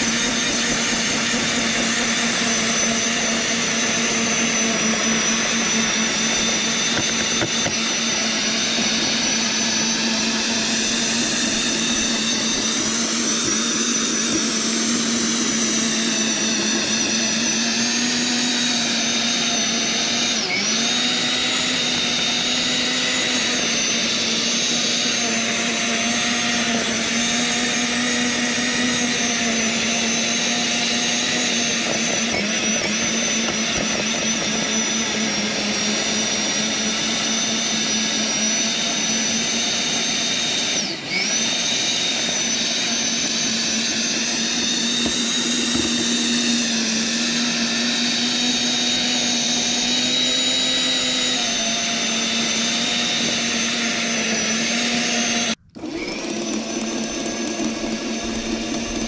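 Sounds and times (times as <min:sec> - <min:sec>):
electric tiller motor whine: 0:00.0 - 0:59.0.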